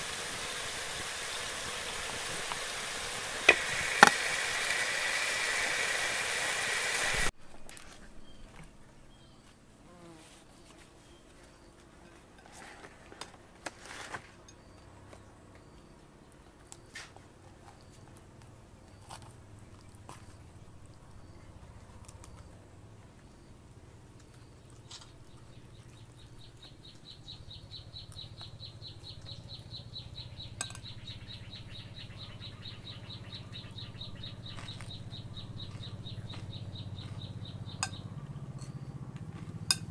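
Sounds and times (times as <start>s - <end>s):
loud steady hiss: 0.0s - 7.3s
spoon clicking against plate: 30.6s - 30.9s, 39.7s - 39.9s.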